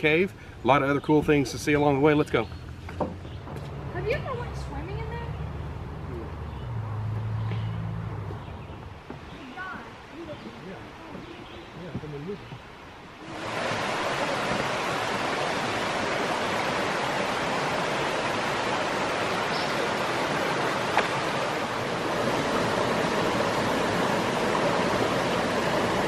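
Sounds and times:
creek water rushing over stones: 13.2s - 26.0s.

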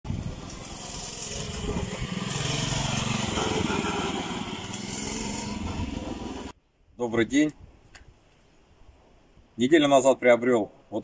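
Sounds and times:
mini-bike engine running: 0.2s - 6.5s.

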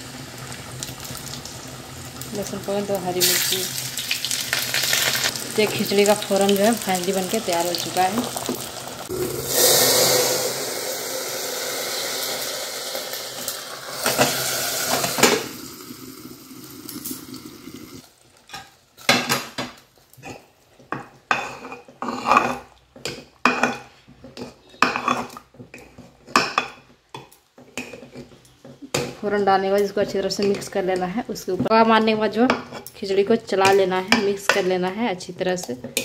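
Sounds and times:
hot oil hissing and sizzling: 0.0s - 18.1s.

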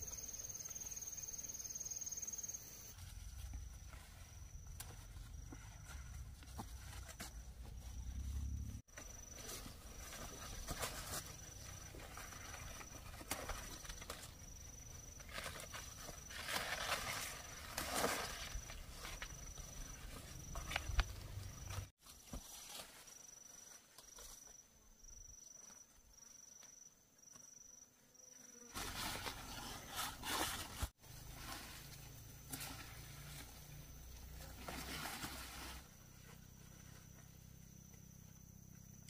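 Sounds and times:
leaves rustling: 2.7s - 24.4s, 28.7s - 37.3s.

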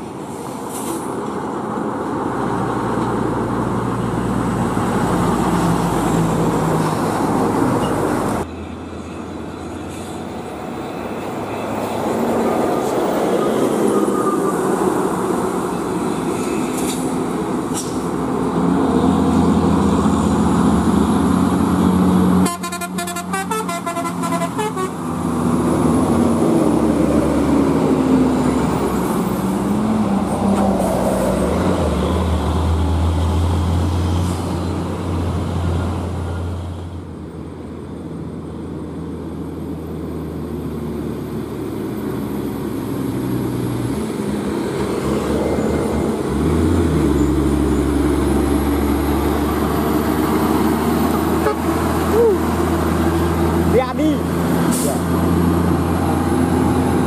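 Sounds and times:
diesel trucks driving past: 0.0s - 57.0s
vehicle horn tooting: 22.4s - 25.0s.

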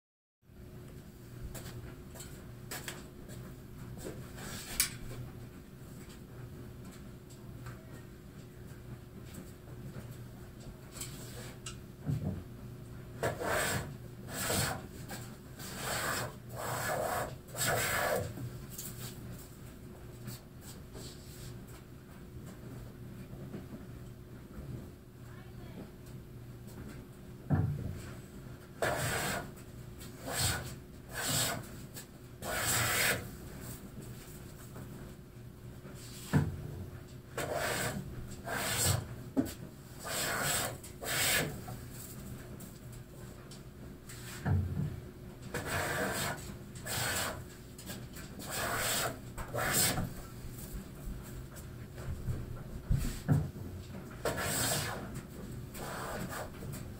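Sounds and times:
hand plane shaving wood: 13.2s - 14.8s, 15.6s - 18.3s, 28.8s - 29.5s, 30.2s - 31.7s, 32.4s - 33.3s, 37.4s - 39.1s, 40.0s - 41.6s, 45.5s - 47.4s, 48.4s - 50.0s, 54.2s - 55.1s.

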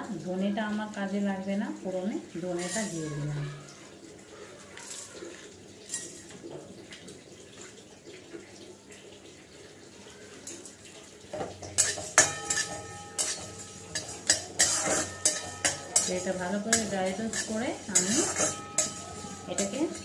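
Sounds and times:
metal spatula scraping a pan: 2.5s - 3.8s, 4.8s - 6.4s, 11.4s - 20.0s.

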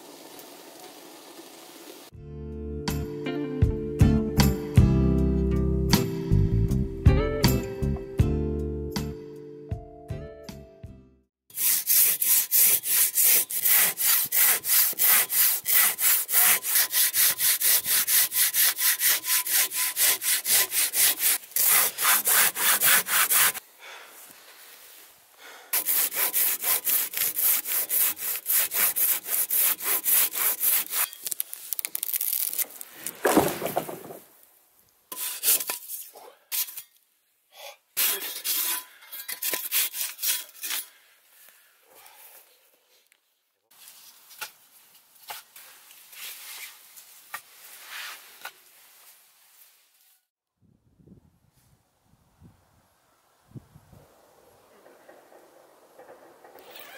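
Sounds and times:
pull saw cutting wood: 11.5s - 23.6s, 25.8s - 31.2s, 56.0s - 56.9s.

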